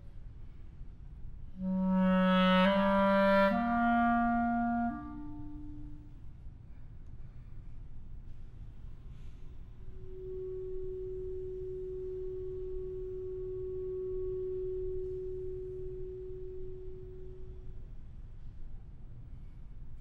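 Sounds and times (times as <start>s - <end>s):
clarinet long steady note: 1.5s - 6.5s, 9.2s - 18.6s.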